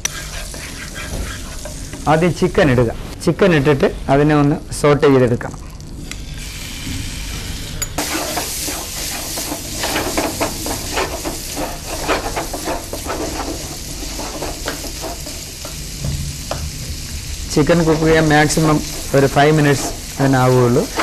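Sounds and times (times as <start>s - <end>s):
wooden spatula scraping a pan: 0.0s - 2.6s, 8.0s - 17.0s, 17.6s - 21.0s
chicken sizzling in a frying pan: 6.2s - 21.0s.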